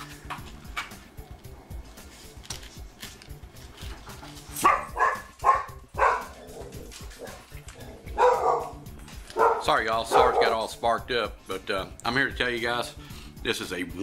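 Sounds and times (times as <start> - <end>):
dog barking: 4.6 - 10.7.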